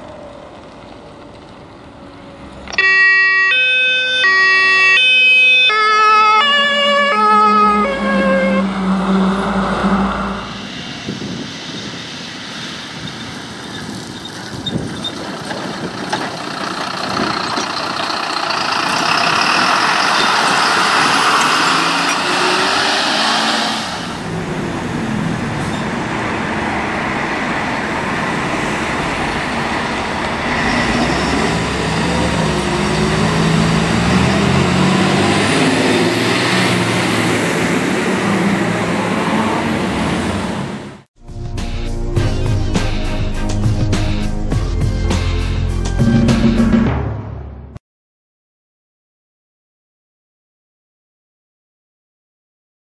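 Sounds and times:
diesel engines accelerating: 0:00.0 - 0:02.9, 0:05.5 - 0:41.1
broad hissing rush: 0:10.5 - 0:13.7, 0:22.4 - 0:24.6.

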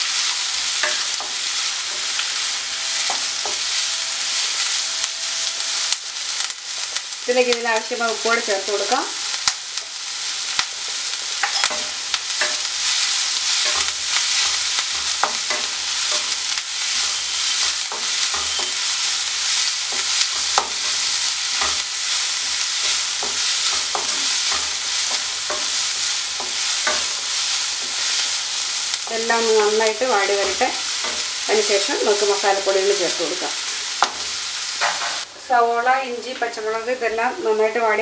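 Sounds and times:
vegetables sizzling in hot oil: 0:00.0 - 0:38.0
spatula scraping and tapping pan: 0:00.7 - 0:07.0, 0:11.4 - 0:32.4, 0:34.0 - 0:35.3.

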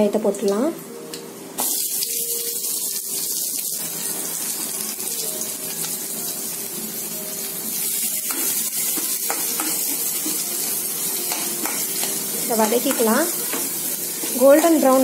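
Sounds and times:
shallots sizzling in hot oil: 0:01.6 - 0:15.0
spoon scraping a pan: 0:08.2 - 0:14.8.

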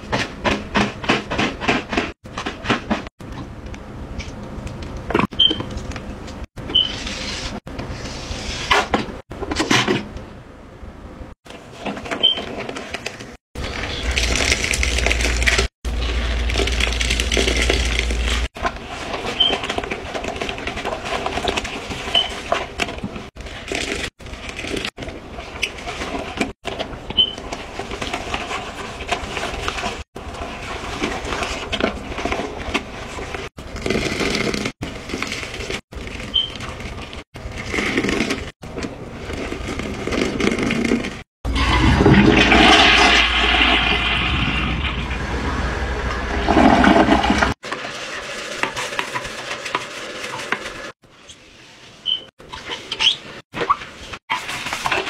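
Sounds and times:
sponge scrubbing toilet bowl: 0:13.6 - 0:26.6, 0:27.2 - 0:35.8, 0:39.3 - 0:53.4.

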